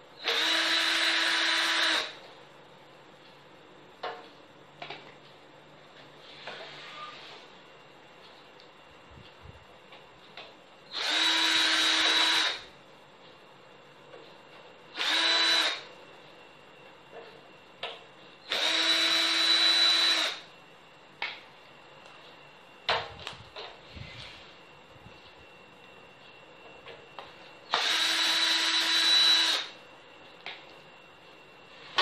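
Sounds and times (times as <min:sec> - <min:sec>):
electric drill-driver whining: 0:00.2 - 0:02.2, 0:10.9 - 0:12.7, 0:15.0 - 0:15.9, 0:18.5 - 0:20.4, 0:27.7 - 0:29.8.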